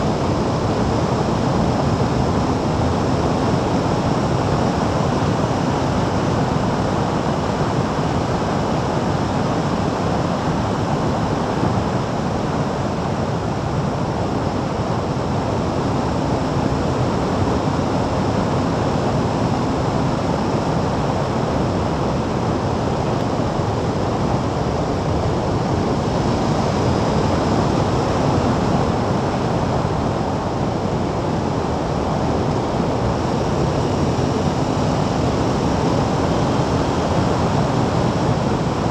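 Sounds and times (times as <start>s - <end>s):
wind rushing over microphone: 0.0s - 38.9s
vehicle drone: 10.7s - 38.9s.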